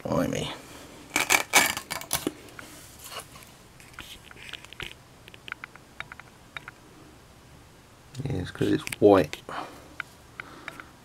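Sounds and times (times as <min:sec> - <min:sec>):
light clicks and taps: 0:08.1 - 0:09.4.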